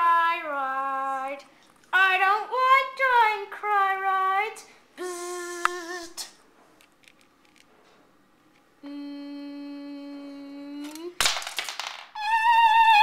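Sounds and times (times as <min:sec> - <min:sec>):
child humming: 0:05.0 - 0:06.3, 0:08.8 - 0:11.2.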